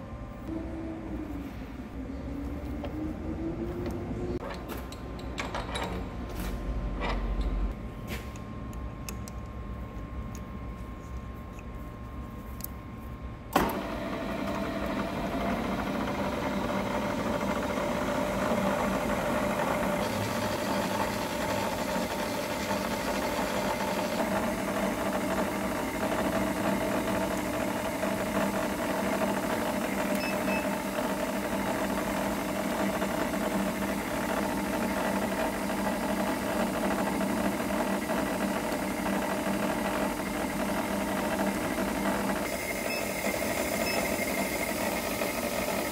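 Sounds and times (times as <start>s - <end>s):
milling machine running: 13.5s - 45.9s.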